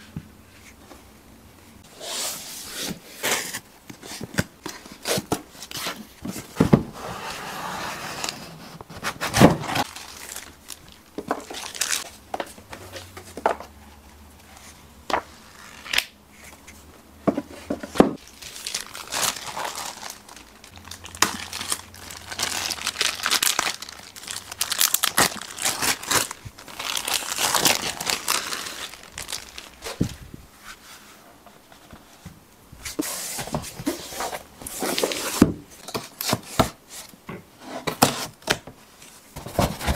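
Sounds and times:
plastic wrap crinkling: 0:09.7 - 0:12.2, 0:18.2 - 0:30.2
tape tearing: 0:15.5 - 0:16.2.

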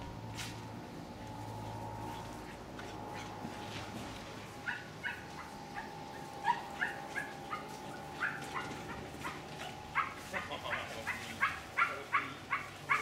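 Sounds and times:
dog barking in high-pitched yips: 0:11.1 - 0:13.0.

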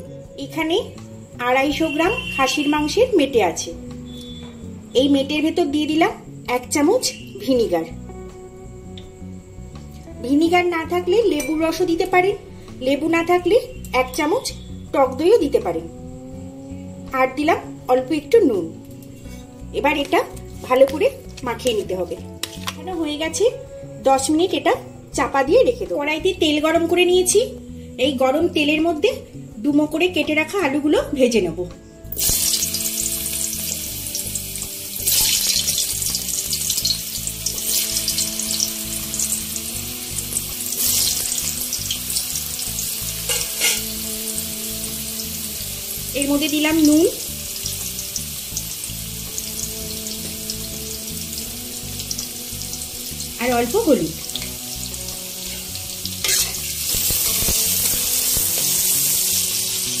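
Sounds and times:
potatoes sizzling in hot oil: 0:32.1 - 1:00.0
sharp scrape in pan: 0:43.2 - 0:43.9, 0:55.5 - 0:59.1.

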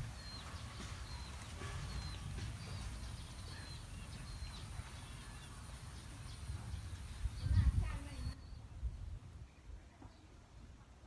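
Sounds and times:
high chirping calls: 0:00.0 - 0:08.8.

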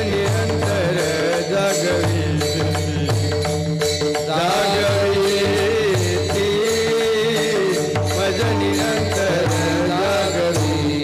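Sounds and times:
hand cymbals struck: 0:00.0 - 0:11.0.

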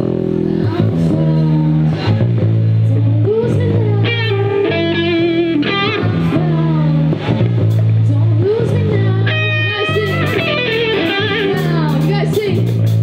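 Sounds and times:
electric bass: 0:00.0 - 0:13.0
electric guitar: 0:00.0 - 0:13.0
woman singing with vibrato: 0:02.8 - 0:07.3, 0:08.0 - 0:12.7.

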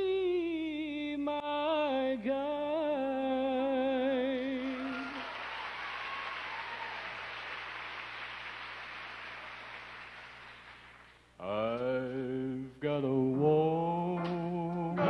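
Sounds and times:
audience applause: 0:04.6 - 0:11.2
man singing long note: 0:11.4 - 0:15.0.

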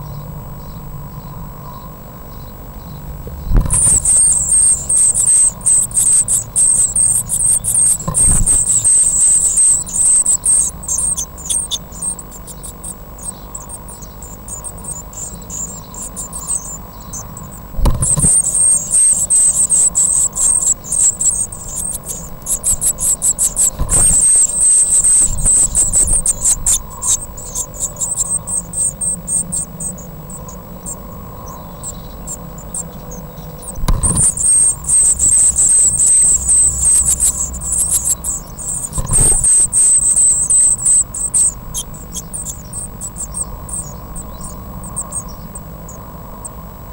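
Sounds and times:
nestlings cheeping: 0:01.5 - 0:46.6
sharp thump: 0:03.3 - 0:04.0, 0:17.8 - 0:18.4, 0:33.8 - 0:34.4, 0:38.9 - 0:39.5.

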